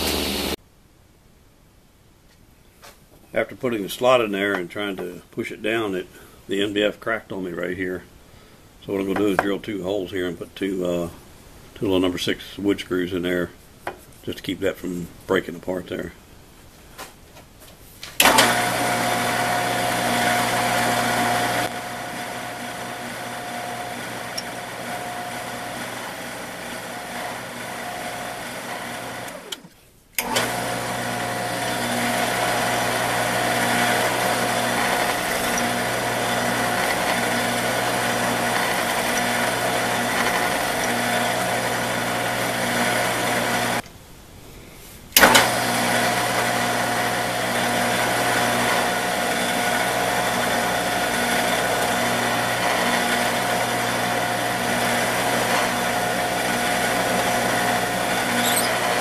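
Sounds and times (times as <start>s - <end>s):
drill press drilling wood: 18.2s - 43.8s, 45.2s - 59.0s.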